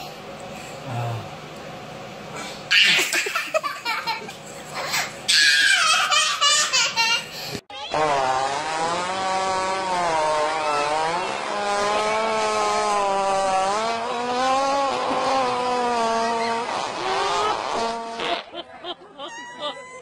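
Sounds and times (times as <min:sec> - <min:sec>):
hippopotamus farting: 0:08.0 - 0:18.5.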